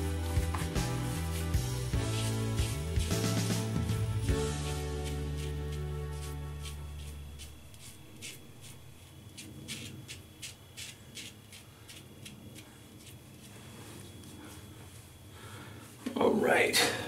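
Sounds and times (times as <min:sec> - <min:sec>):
razor scraping beard stubble: 0:00.3 - 0:13.7.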